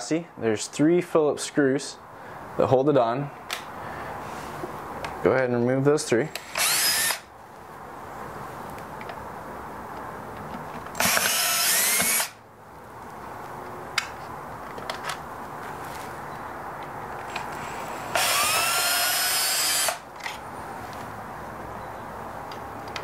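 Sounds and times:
cordless drill motor whine: 6.4s - 7.2s, 11.0s - 12.4s, 17.3s - 20.0s.

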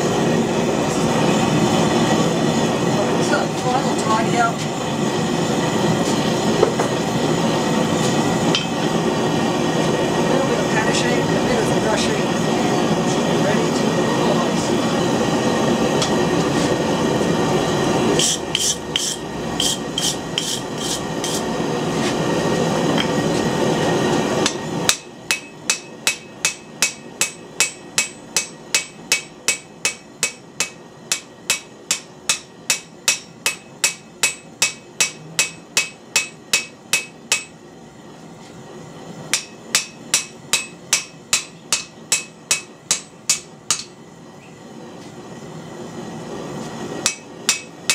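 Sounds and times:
hammer striking hot steel on anvil: 8.0s - 9.0s, 18.2s - 21.5s, 24.4s - 37.6s, 39.3s - 44.0s, 47.0s - 47.9s.

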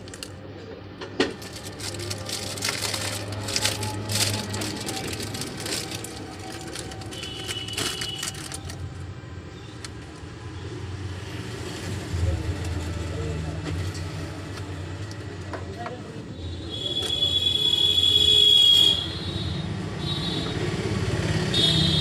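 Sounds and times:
paper wrapping crackling: 0.0s - 0.4s, 1.3s - 9.1s
low vehicle hum: 0.0s - 15.4s.

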